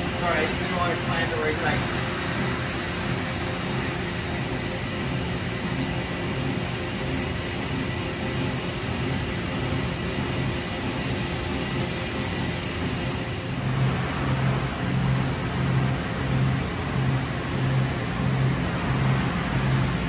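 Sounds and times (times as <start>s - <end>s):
industrial machinery hum and hiss: 0.0s - 20.0s
low pulsing hum: 13.4s - 20.0s.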